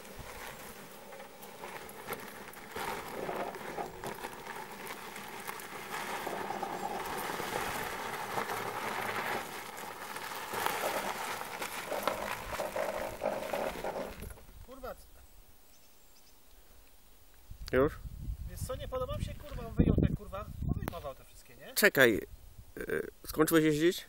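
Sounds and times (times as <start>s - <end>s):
small loader motor whine: 0.0s - 14.4s
tyres crunching on gravel: 0.0s - 15.0s.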